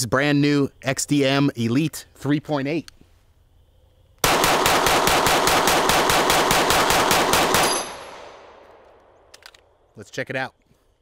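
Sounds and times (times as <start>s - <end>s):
pistol shots: 4.2s - 9.4s.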